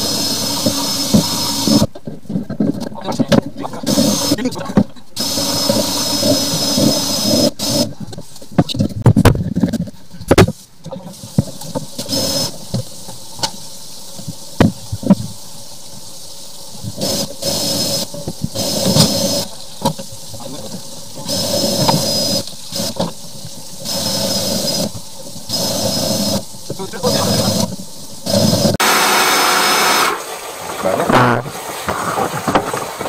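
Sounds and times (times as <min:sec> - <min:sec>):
drain-cleaning machine whining: 0:00.0 - 0:01.9, 0:21.2 - 0:23.0, 0:25.5 - 0:32.9.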